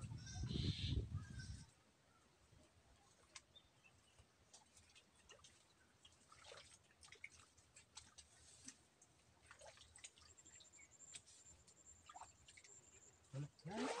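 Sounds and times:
hands groping in muddy water: 3.0 - 11.4, 13.4 - 14.0.

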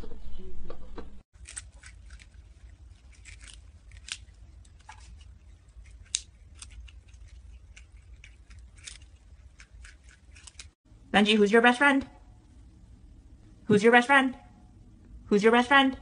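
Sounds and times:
low steady hum: 0.8 - 16.0
animals chewing crunchy food: 1.4 - 10.8.

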